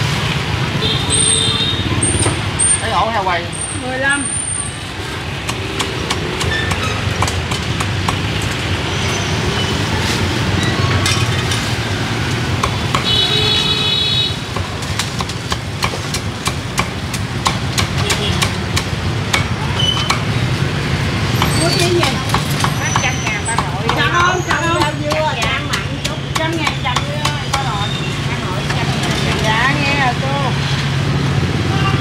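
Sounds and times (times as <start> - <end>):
street traffic: 0.0 - 32.0
cleaver chopping on a board: 14.5 - 20.3, 23.5 - 27.7.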